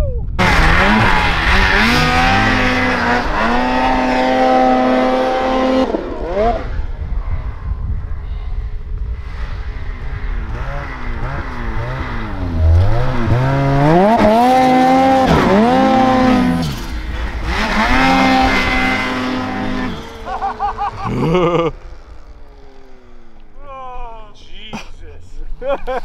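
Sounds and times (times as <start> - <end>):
snowmobile engine revving: 0.4 - 7.4, 9.0 - 24.7.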